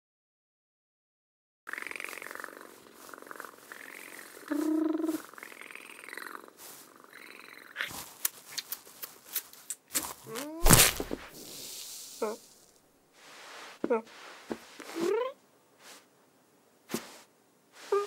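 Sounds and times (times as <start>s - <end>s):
cartoon cat purring: 1.7s - 8.0s
sharp clicks and scuffs: 7.9s - 11.3s.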